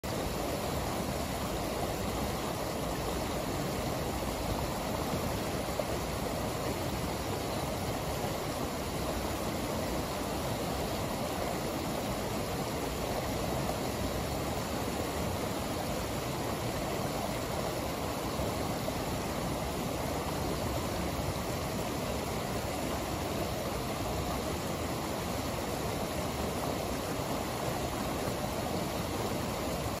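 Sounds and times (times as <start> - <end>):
water rushing over a weir: 0.0 - 30.0.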